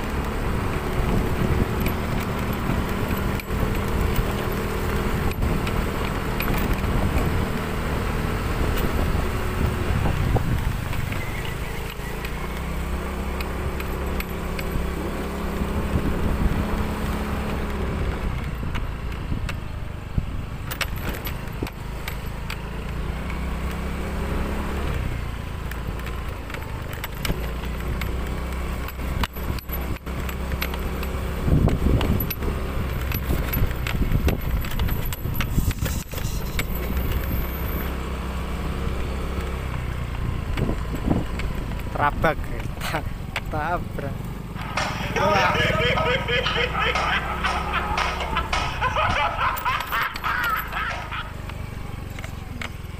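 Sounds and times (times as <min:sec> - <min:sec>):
motorcycle engine running: 0:00.0 - 0:52.9
rattles and knocks: 0:46.5 - 0:52.4.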